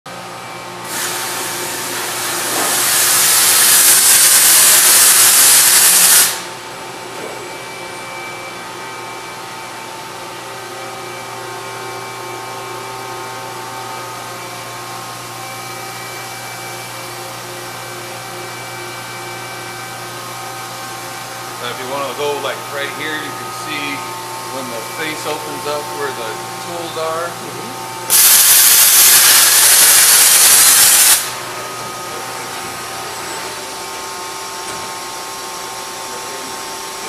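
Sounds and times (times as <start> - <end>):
machine running hum: 0.1 - 37.0
loud rushing hiss: 2.6 - 6.5, 28.1 - 31.6.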